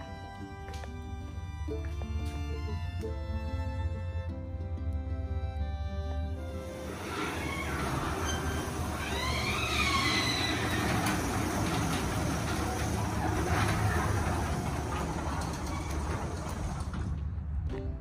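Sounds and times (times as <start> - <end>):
garage door opener rumbling: 6.0 - 17.6.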